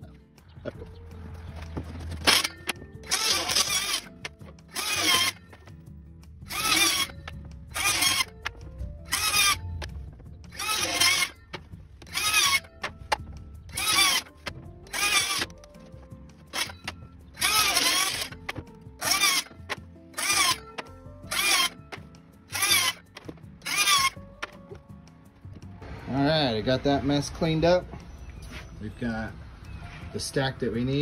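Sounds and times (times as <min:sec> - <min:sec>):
circular saw cutting board: 0:03.1 - 0:05.4, 0:06.5 - 0:08.3, 0:09.1 - 0:09.6, 0:10.5 - 0:12.7, 0:13.7 - 0:15.6, 0:16.5 - 0:19.5, 0:20.2 - 0:21.8, 0:22.5 - 0:23.0, 0:23.6 - 0:24.2.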